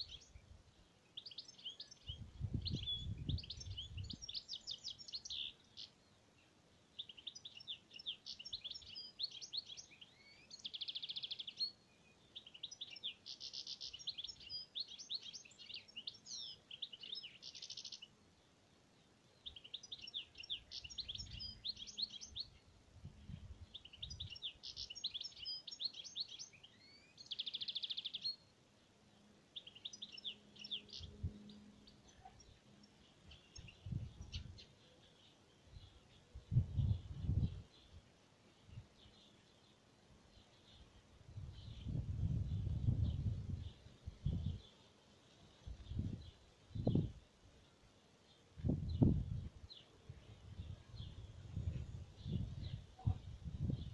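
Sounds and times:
songbird singing: 0.0s - 53.9s.

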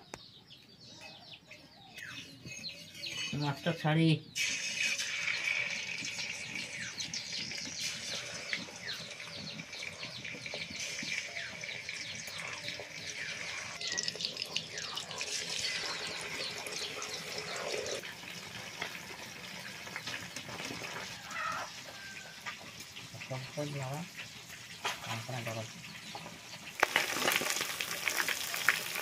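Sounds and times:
fish frying in hot oil: 4.4s - 29.0s.

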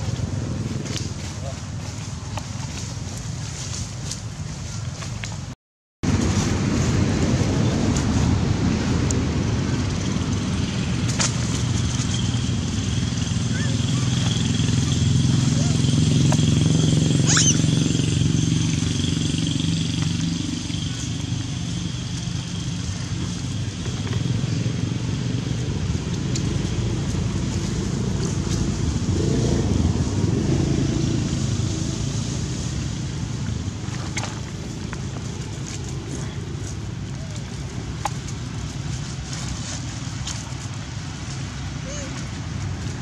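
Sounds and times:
vehicle engine rumbling: 0.0s - 43.0s
brief high squeak: 17.2s - 17.6s.

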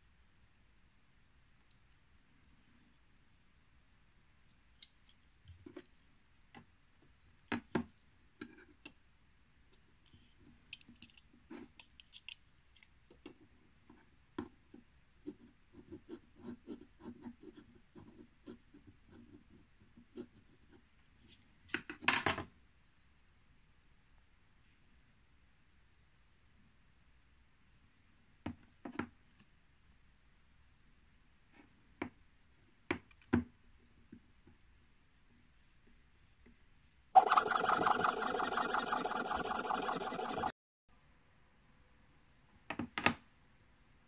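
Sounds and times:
caliper scribing on brass: 37.2s - 40.5s.

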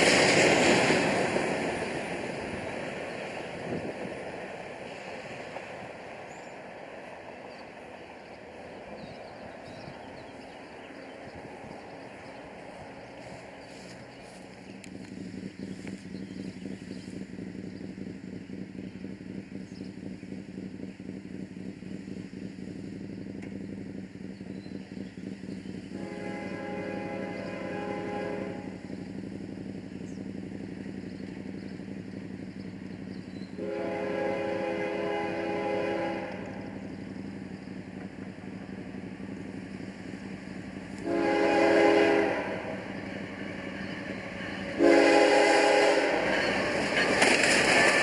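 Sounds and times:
low engine rumble: 0.0s - 48.0s
distant locomotive air horn: 25.8s - 29.0s, 33.5s - 36.8s, 41.0s - 47.2s.

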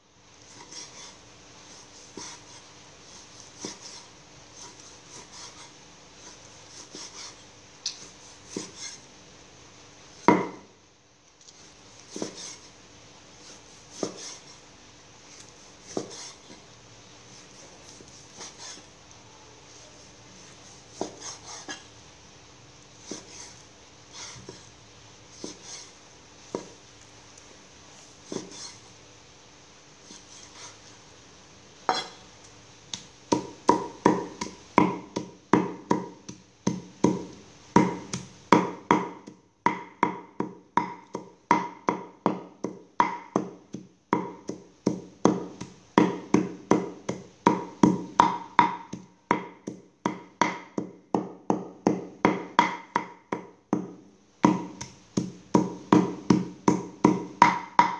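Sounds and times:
cleaver chopping on wooden block: 8.5s - 8.8s, 10.2s - 10.6s, 12.1s - 12.5s, 14.0s - 14.4s, 15.9s - 16.3s, 21.0s - 21.8s, 28.3s - 28.6s, 32.9s - 57.9s.

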